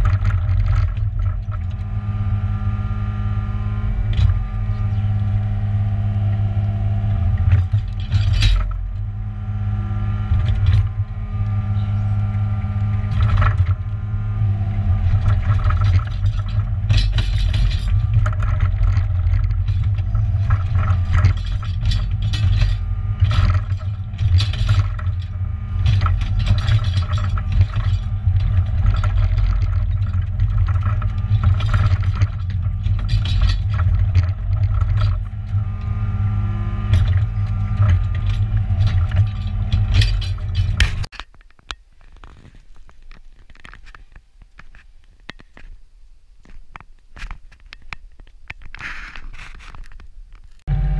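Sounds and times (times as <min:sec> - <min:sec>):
bucket scraping soil and stones: 0:00.0 - 0:02.6, 0:09.7 - 0:41.1
excavator diesel engine running: 0:00.0 - 0:41.1, 0:50.7 - 0:50.9.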